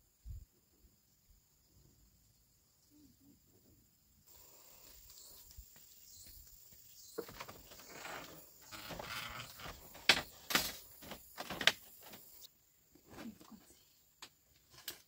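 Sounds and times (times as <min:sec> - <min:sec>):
footsteps on bamboo floor: 0:04.8 - 0:13.7
rustling: 0:07.0 - 0:13.8.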